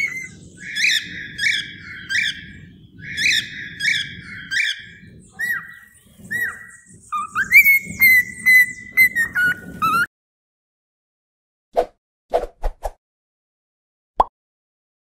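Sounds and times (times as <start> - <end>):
cockatiel chirping and whistling: 0.0 - 2.4, 3.0 - 10.1.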